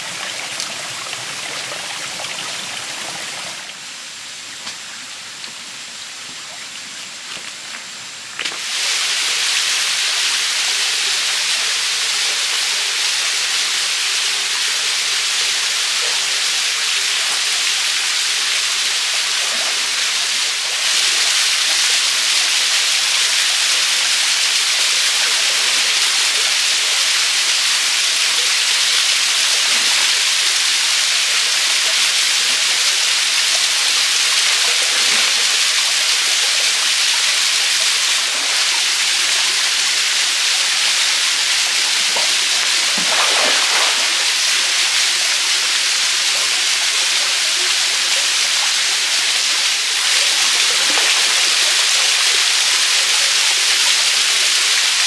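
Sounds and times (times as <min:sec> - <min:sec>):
waterfall rushing into pool: 0:00.0 - 0:55.0.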